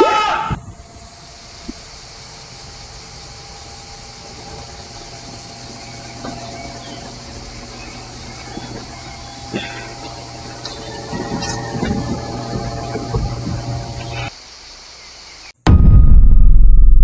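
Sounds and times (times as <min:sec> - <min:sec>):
loud shouted voice: 0:00.0 - 0:00.6
background hiss with low hum: 0:00.0 - 0:15.4.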